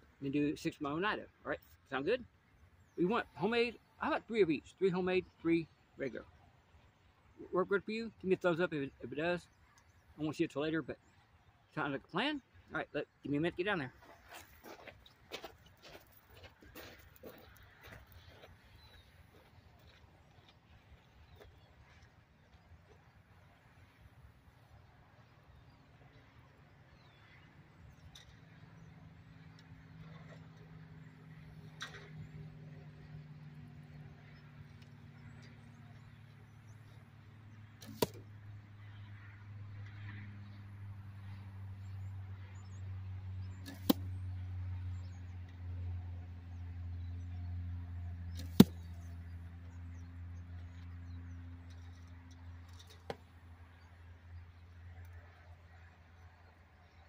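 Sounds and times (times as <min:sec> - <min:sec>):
arrow hitting target: 0:37.8 - 0:38.2, 0:43.6 - 0:44.1, 0:48.4 - 0:49.0.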